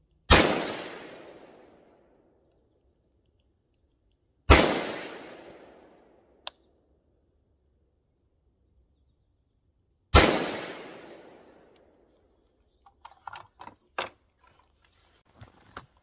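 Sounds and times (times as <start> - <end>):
rifle shot: 0.3 - 1.8, 4.5 - 6.1, 10.1 - 11.7.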